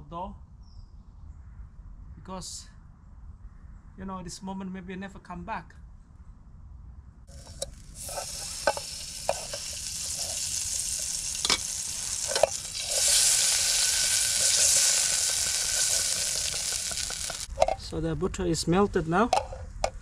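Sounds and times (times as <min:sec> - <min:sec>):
butter sizzling in pot: 0:07.3 - 0:17.9
utensil clicking against pot: 0:07.4 - 0:13.3.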